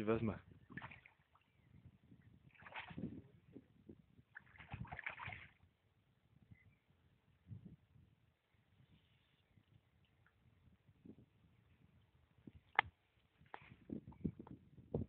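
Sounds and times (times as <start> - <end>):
fish splashing in water: 4.4 - 5.6.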